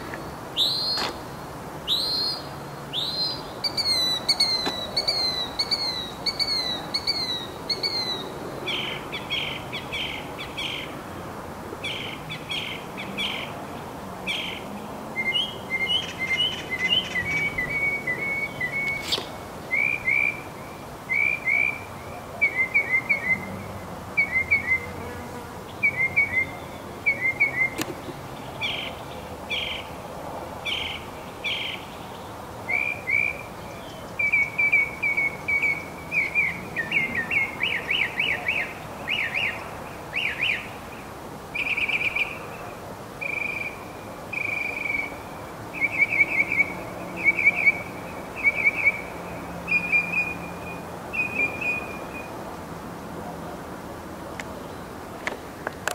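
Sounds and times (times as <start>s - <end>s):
mockingbird singing: 1.9s - 10.9s, 14.3s - 23.5s, 24.2s - 25.0s, 25.7s - 29.9s, 32.7s - 40.7s, 41.6s - 42.5s, 43.2s - 52.3s.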